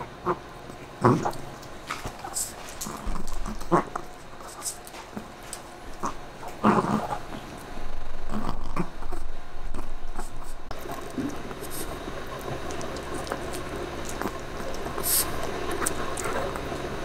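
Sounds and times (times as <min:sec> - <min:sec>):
dogs growling and whining: 0:00.0 - 0:17.0
chewing clicks: 0:08.7 - 0:17.0.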